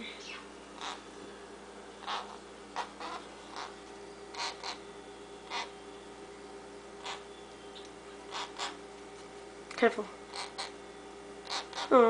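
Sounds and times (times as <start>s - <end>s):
parakeet chick begging calls: 0.0s - 1.1s, 2.0s - 5.9s, 7.0s - 8.8s, 10.3s - 10.8s, 11.4s - 12.0s.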